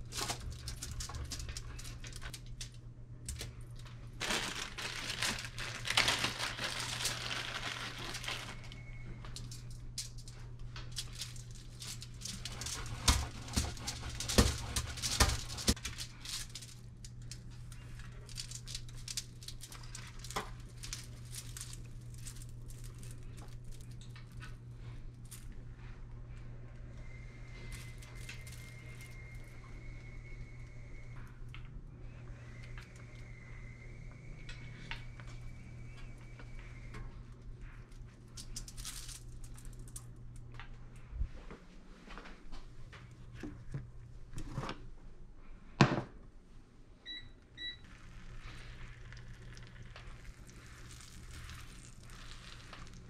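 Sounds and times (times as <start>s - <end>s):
foil crinkling: 0.0s - 2.6s, 3.8s - 24.4s, 27.5s - 29.5s, 47.8s - 53.0s
steady low hum: 0.0s - 53.0s
cheese grating rasps: 47.8s - 53.0s.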